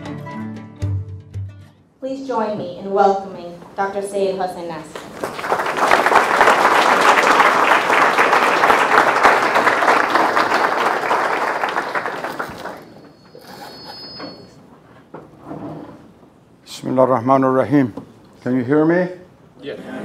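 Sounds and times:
audience applauding: 4.9s - 13.8s.

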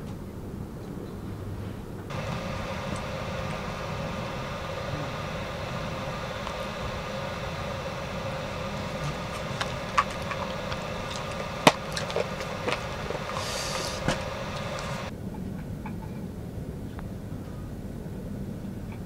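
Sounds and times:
steady low hum: 1.9s - 15.3s.

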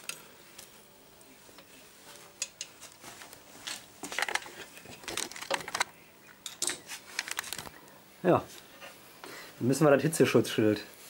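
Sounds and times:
rustling with light clicks and clinks: 1.6s - 7.8s.

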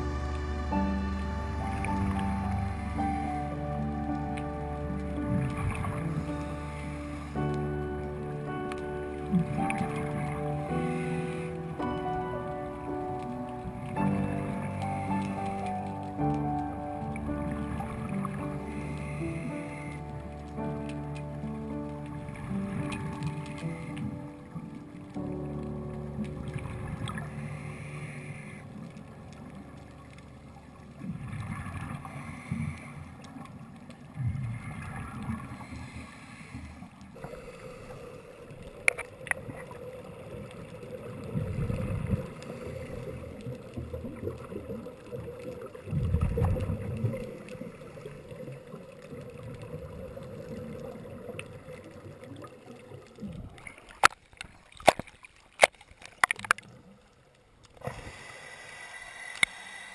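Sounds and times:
steady hum: 0.0s - 12.9s
underwater regulator bubbles: 0.0s - 57.0s
water splashes: 0.0s - 59.9s.

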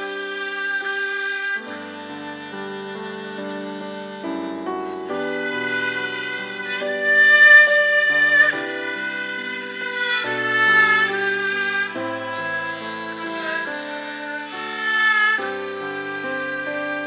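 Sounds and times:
bowed fiddles playing slow melody: 0.0s - 17.0s.

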